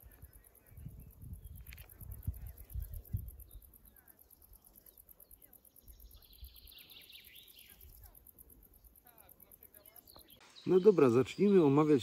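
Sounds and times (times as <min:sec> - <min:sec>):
wind rumble on microphone: 0:00.0 - 0:03.7
faint bird chirps: 0:00.0 - 0:12.0.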